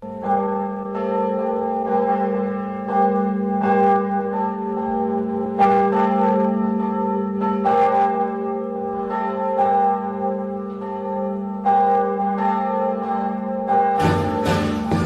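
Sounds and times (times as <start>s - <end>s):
bell ringing: 13.8s - 15.0s.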